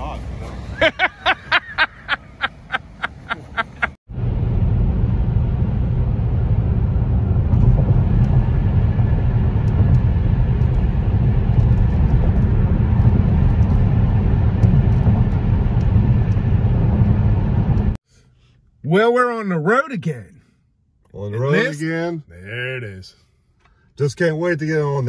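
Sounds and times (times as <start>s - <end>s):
car interior road rumble: 0.0s - 18.0s.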